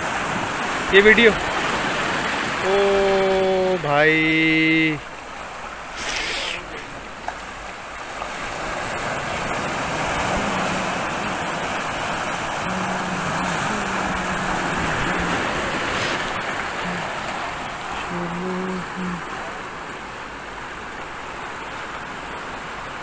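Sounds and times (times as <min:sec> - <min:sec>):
waves breaking on rocky shore: 0:00.0 - 0:23.0.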